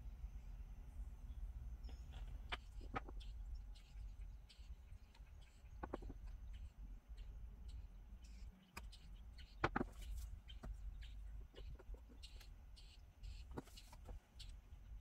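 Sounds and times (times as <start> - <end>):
low steady hum: 0.0 - 15.0
small plastic clicks and taps: 5.8 - 6.4.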